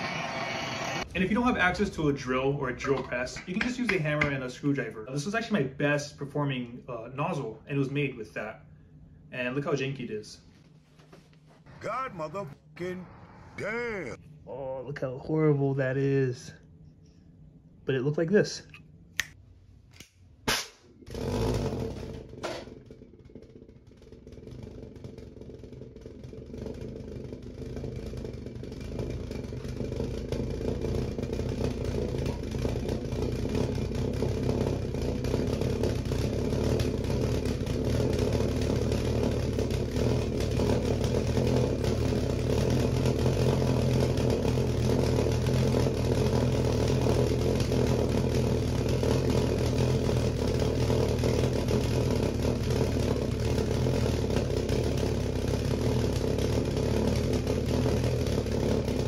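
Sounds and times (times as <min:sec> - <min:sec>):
sharp ignition pops: 0:20.0 - 0:23.4.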